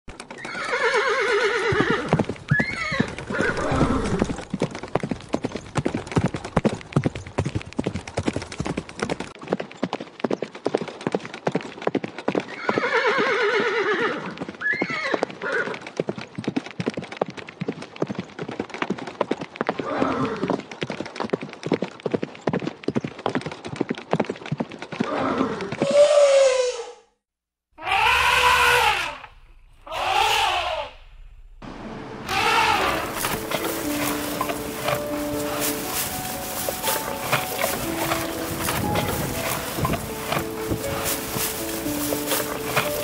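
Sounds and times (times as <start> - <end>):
hoofbeats clip-clopping: 0.1 - 26.0, 32.3 - 43.0
horse whinnying: 0.4 - 4.4, 12.6 - 15.8, 27.8 - 30.9, 32.3 - 35.0.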